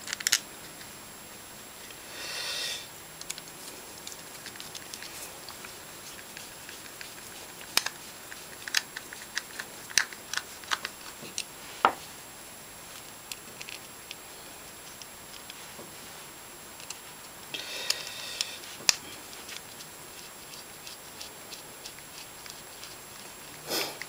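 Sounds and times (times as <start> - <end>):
soft hiss: 0.0 - 24.0.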